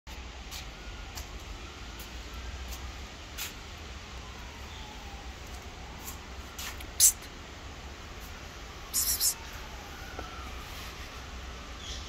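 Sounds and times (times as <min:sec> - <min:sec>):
low rumble and hiss: 0:00.1 - 0:12.0.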